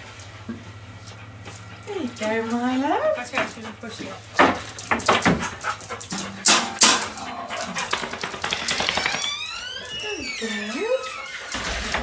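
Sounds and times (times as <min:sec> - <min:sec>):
dog whining: 0:06.2 - 0:11.7
sharp knocks and clicks: 0:07.8 - 0:09.3.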